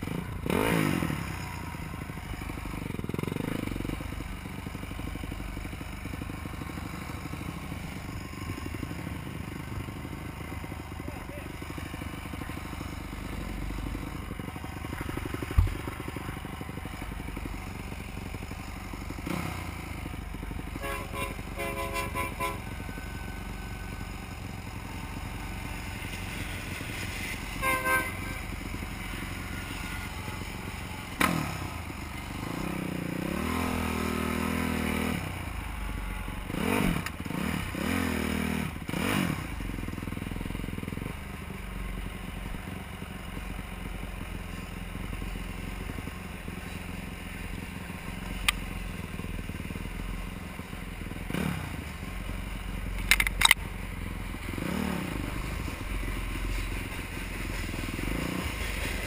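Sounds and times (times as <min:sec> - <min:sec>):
engine revving: 0:00.0 - 0:04.2, 0:11.2 - 0:35.7, 0:36.3 - 0:41.2, 0:51.2 - 0:51.9, 0:54.3 - 0:59.0
motorcycle engines running: 0:00.0 - 0:59.0.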